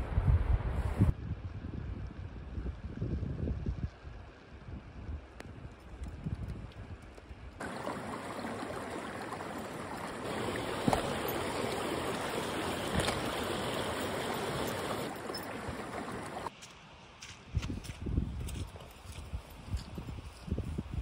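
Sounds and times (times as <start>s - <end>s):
stream flowing among boulders: 7.6s - 16.5s.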